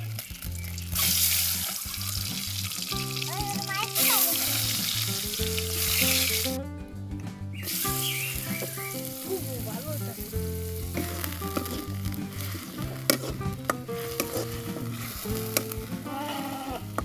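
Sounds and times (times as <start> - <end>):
food sizzling in oil: 0.0 - 6.6, 7.6 - 17.0
metal spatula scraping wok: 11.0 - 16.6.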